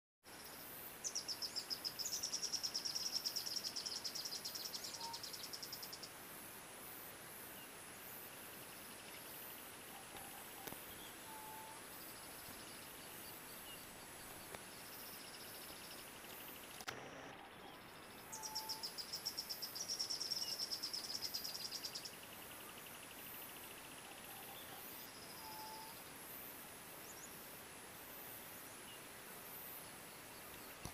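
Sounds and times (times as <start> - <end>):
steady high hiss: 0.3 - 30.9
insect trilling: 9.2 - 22.0, 24.2 - 26.0
faint whistled notes: 11.3 - 11.8.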